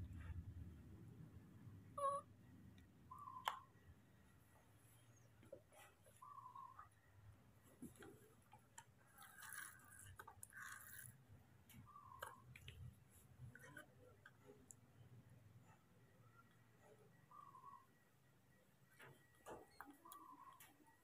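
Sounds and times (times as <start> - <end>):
faint monkey chirps: 2.0 - 2.3, 3.1 - 3.7, 6.2 - 6.9, 17.2 - 18.0.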